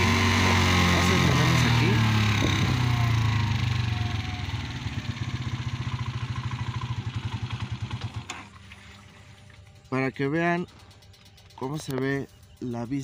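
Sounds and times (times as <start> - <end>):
motorcycle engine slowing down: 0.0 - 13.0.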